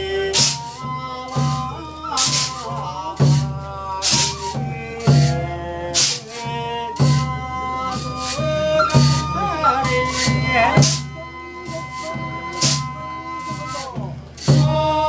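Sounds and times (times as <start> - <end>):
bamboo flute: 0.0 - 15.0
man singing: 0.0 - 15.0
percussion beat: 0.0 - 15.0.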